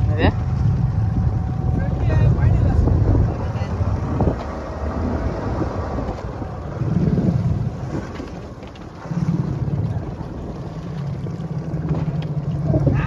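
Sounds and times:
boat engine rumbling: 0:00.0 - 0:13.0
wind buffeting microphone: 0:00.0 - 0:13.0.

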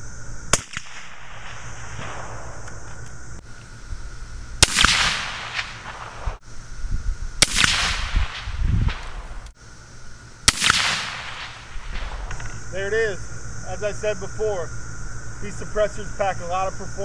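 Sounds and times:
suppressed rifle shots: 0:00.5 - 0:03.1, 0:04.6 - 0:06.4, 0:07.4 - 0:09.5, 0:10.4 - 0:12.7.

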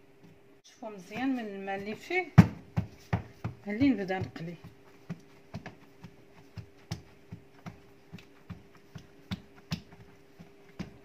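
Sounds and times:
faint steady hum: 0:00.0 - 0:11.0
hands patting paper towel: 0:01.1 - 0:11.0.

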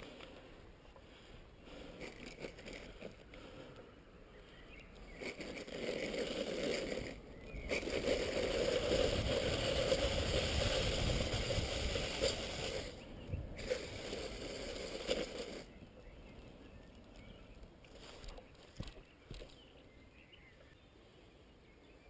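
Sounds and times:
skate wheels rolling on asphalt: 0:00.0 - 0:19.8
wind buffeting microphone: 0:06.6 - 0:17.5.

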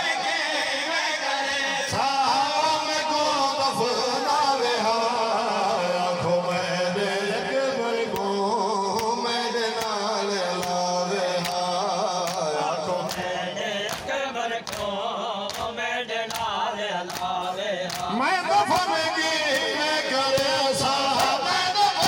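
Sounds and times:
men chanting over a microphone: 0:00.0 - 0:22.0
hands slapping chests: 0:11.4 - 0:11.6, 0:12.2 - 0:18.1.

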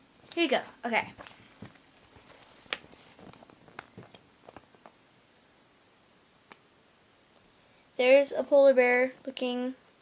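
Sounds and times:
magazine pages turning: 0:01.2 - 0:05.0.

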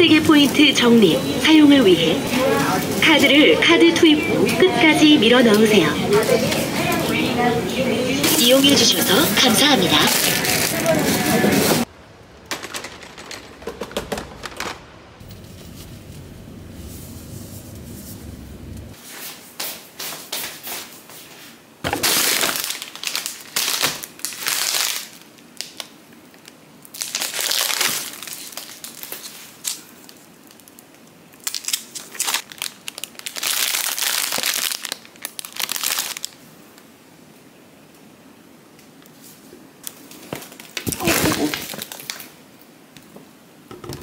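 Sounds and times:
plastic bags crinkling: 0:09.4 - 0:11.9, 0:21.9 - 0:36.4, 0:40.1 - 0:42.3.

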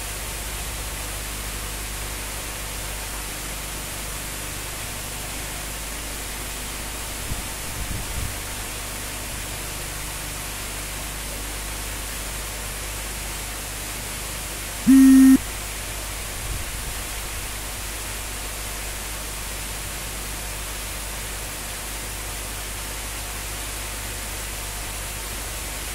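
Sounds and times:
loud beep-like tone: 0:14.9 - 0:15.4.

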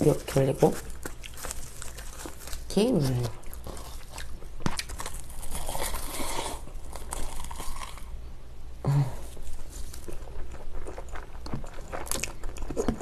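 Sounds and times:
close chewing of food: 0:00.0 - 0:08.2, 0:09.2 - 0:13.0.

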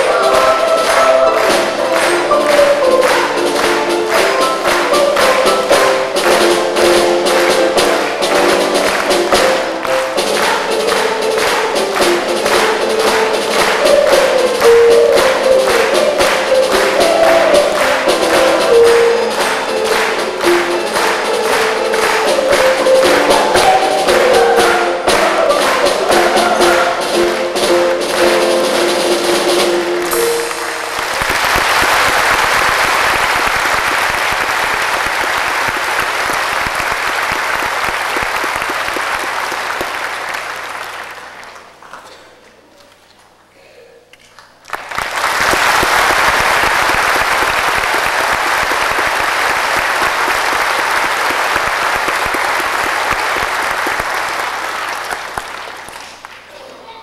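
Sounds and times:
children's choir singing: 0:00.0 - 0:31.2
percussion beats: 0:00.0 - 0:41.8, 0:44.7 - 0:56.6
piano: 0:00.0 - 0:41.8, 0:44.8 - 0:56.2
audience applause: 0:00.0 - 0:42.2, 0:44.4 - 0:56.8.

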